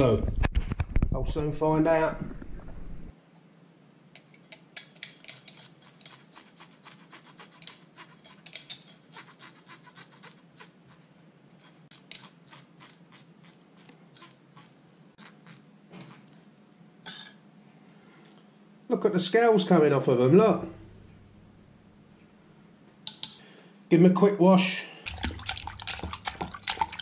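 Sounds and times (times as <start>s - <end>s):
knife scraping fish scales: 4.8s - 10.8s, 11.6s - 16.3s.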